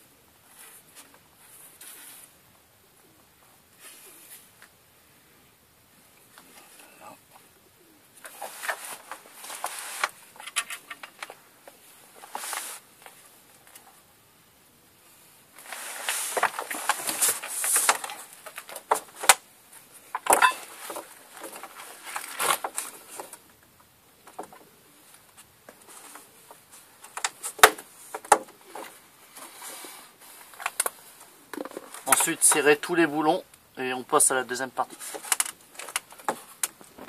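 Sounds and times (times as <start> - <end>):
hands handling metal parts: 8.2 - 14.0, 15.6 - 23.5, 24.2 - 33.0, 34.8 - 37.0.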